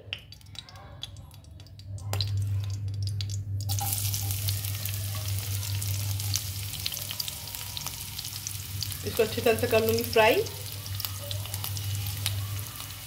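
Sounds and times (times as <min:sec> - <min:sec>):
low steady hum: 0:00.0 - 0:13.0
onions sizzling in oil: 0:03.6 - 0:13.0.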